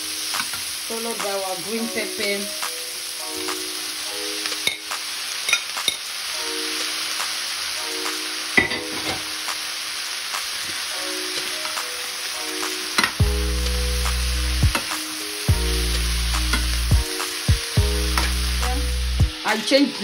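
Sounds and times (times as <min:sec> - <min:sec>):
background music with held chords: 0:00.0 - 0:05.1, 0:06.3 - 0:07.1, 0:10.9 - 0:20.0
peppers sizzling in frying pan: 0:00.0 - 0:20.0
deep bass line: 0:13.2 - 0:14.8, 0:15.5 - 0:19.4.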